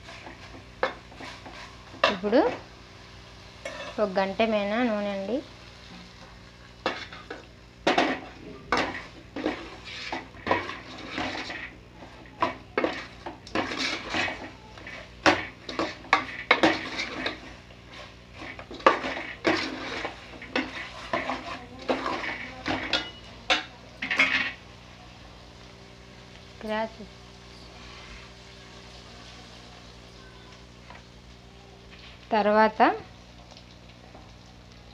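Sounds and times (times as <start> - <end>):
metal spoon scraping a pot: 12.8 - 23.2.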